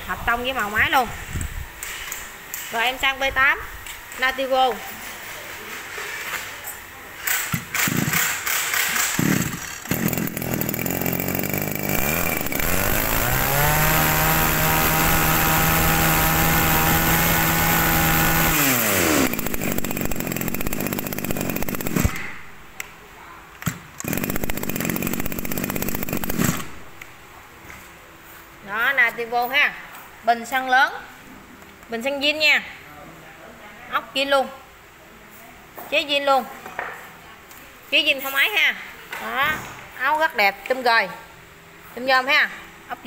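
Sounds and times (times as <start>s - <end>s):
brush-cutter engine revving and idling: 7.5s - 22.4s, 24.0s - 26.9s.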